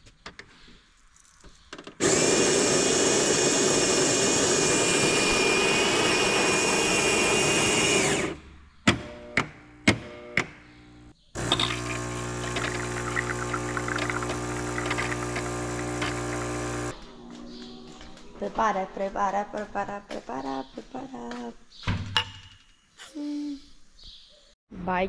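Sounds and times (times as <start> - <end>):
coffee grinder grinding: 2.0 - 8.4, 11.4 - 17.0
coffee machine pump hum: 2.0 - 8.4, 11.4 - 16.9.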